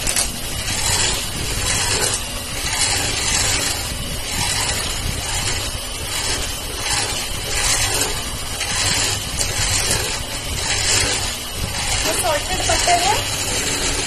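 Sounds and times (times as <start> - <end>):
electric hand mixer whisking: 0.0 - 14.0.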